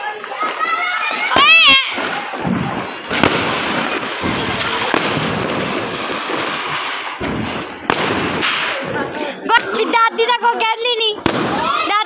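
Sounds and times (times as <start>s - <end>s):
firework sharp pops: 0.3s - 9.0s, 11.2s - 11.9s
firework hissing crackle: 0.4s - 9.4s.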